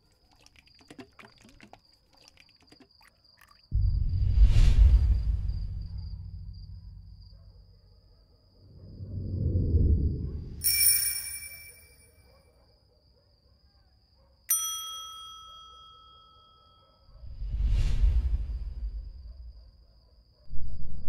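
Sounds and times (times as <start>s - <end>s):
low rumbling swell: 3.7s - 7.7s, 8.6s - 10.6s, 17.2s - 19.7s
faint steady high tone: 10.6s - 12.6s, 14.5s - 17.1s.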